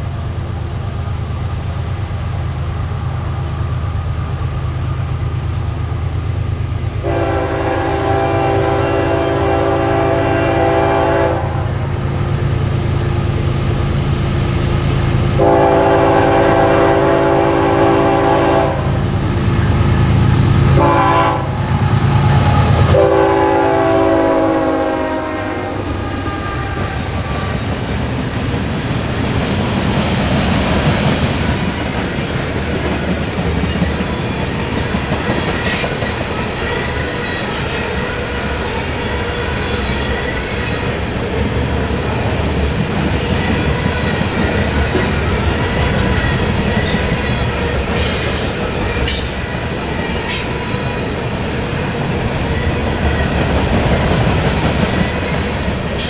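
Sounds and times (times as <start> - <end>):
train wheels rumbling on rails: 0.0 - 56.0
locomotive horn: 7.0 - 11.8, 15.3 - 19.1, 19.7 - 27.8
high wheel squeal: 45.2 - 51.6.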